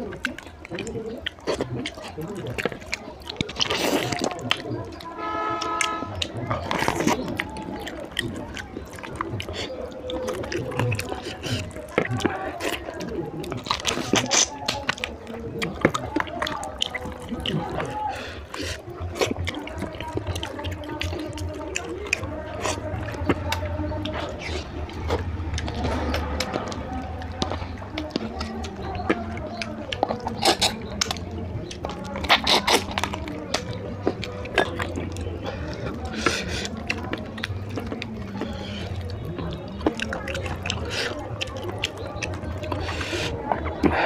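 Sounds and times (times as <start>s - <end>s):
fingers squishing wet food: 0.0s - 44.0s
open-mouthed chewing and lip smacking: 0.0s - 44.0s.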